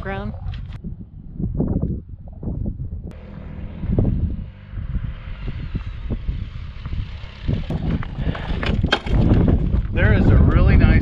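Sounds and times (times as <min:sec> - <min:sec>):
wind buffeting microphone: 0:00.0 - 0:11.0
motorcycle engines running: 0:03.1 - 0:10.6.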